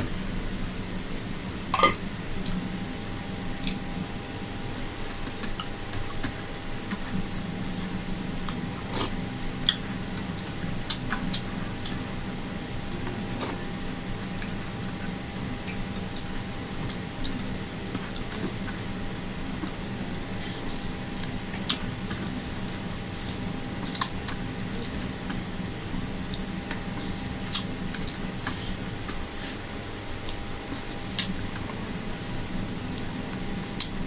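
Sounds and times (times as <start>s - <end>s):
steady hum: 0.0s - 34.0s
chewing: 23.8s - 29.6s.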